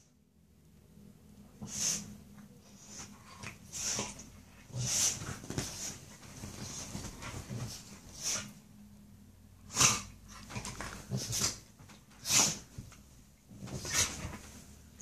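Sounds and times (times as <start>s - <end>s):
dog snorting and huffing: 2.8s - 8.6s, 9.7s - 12.9s.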